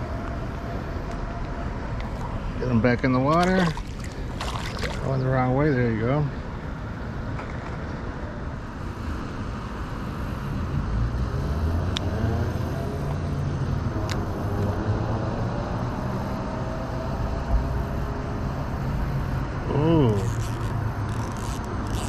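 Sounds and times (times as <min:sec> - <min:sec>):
road traffic rumble: 0:00.0 - 0:22.0
vehicle passing by: 0:10.2 - 0:22.0.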